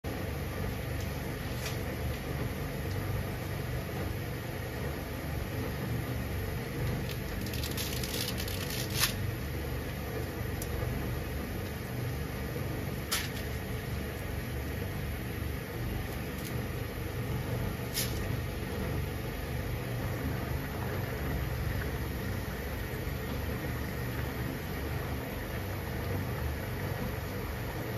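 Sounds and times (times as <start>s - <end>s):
water boiling in a pan: 0.1s - 27.9s
salt crackling in water: 6.3s - 27.9s.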